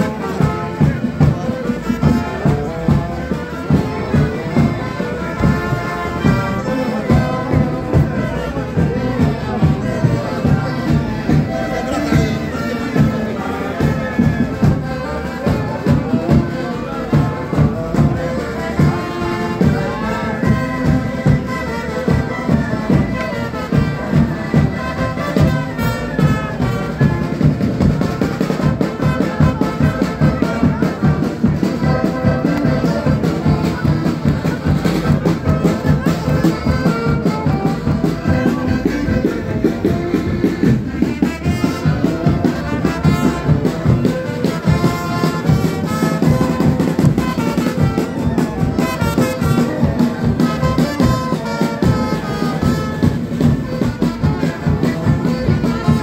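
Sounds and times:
brass band dance tune: 0.0 - 56.0.

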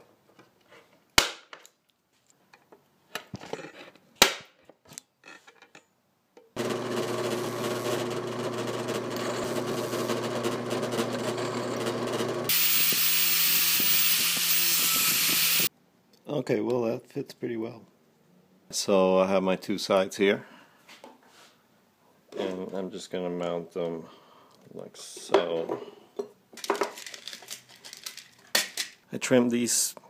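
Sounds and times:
angle grinder grinding metal: 6.6 - 15.7
drill press drilling: 6.6 - 15.7.

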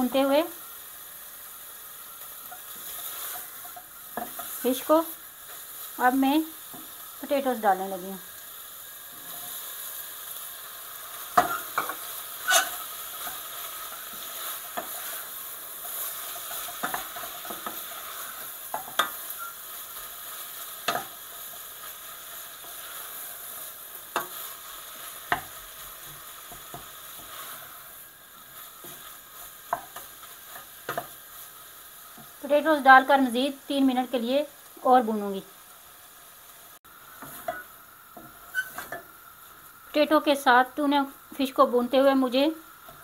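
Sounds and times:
food sizzling in a saucepan: 0.0 - 43.0
wooden spoon knocking on pan: 11.4 - 12.6.

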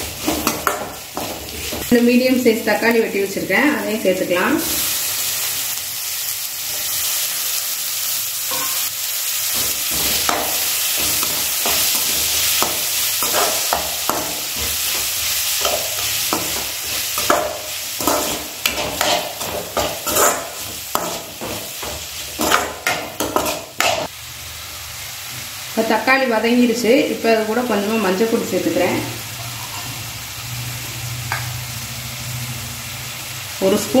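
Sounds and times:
vegetables sizzling in hot oil: 0.0 - 34.0
metal spatula scraping a pan: 9.5 - 24.1.

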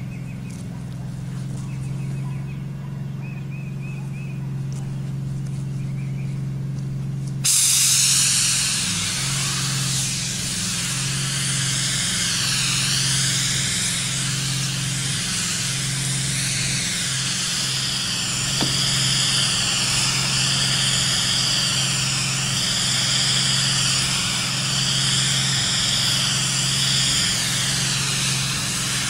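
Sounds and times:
spray rig machine hum: 0.0 - 29.0
spray gun hissing: 7.4 - 29.0.

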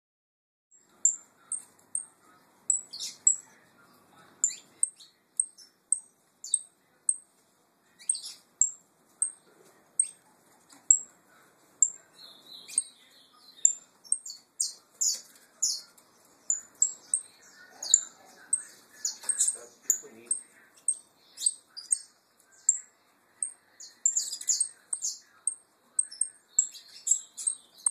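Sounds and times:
finches chirping: 0.8 - 3.6, 4.2 - 7.3, 8.0 - 10.2, 11.8 - 27.9.

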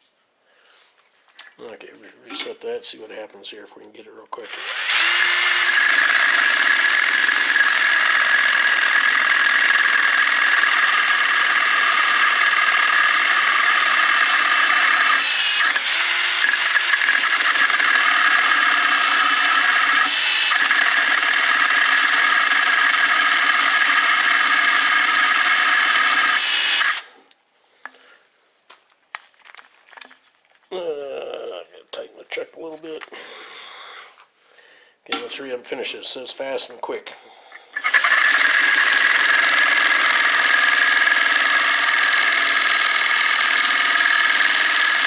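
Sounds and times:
drill cut-off wheel grinding metal: 4.4 - 27.2, 37.8 - 45.0.

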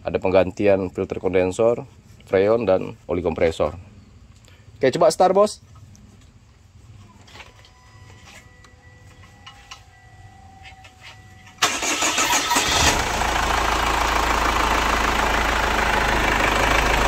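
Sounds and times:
diesel engine idling: 11.5 - 17.0
starter motor cranking: 11.6 - 14.0.

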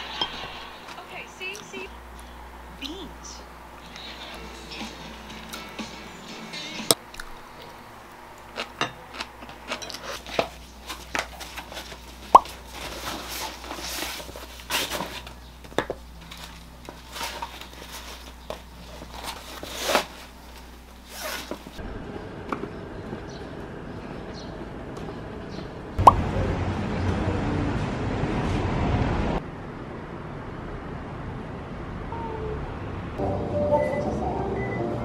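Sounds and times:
low outdoor background: 0.0 - 35.0
backpack fabric rustling: 21.0 - 21.8.

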